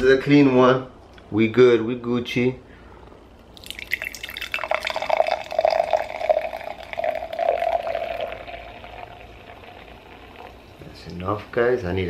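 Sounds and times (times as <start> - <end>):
soda pouring and fizzing: 3.5 - 10.8.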